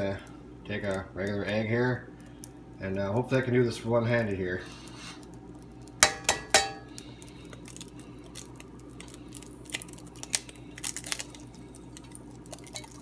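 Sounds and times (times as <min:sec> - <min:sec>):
egg frying in butter: 0:00.7 - 0:13.0
egg tapped on skillet rim: 0:06.0 - 0:06.9.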